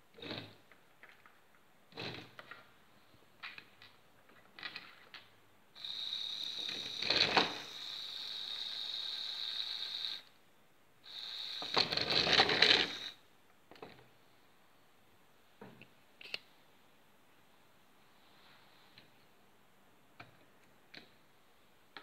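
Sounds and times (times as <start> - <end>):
toy car electric motor whine: 5.8 - 10.3, 11.1 - 13.2.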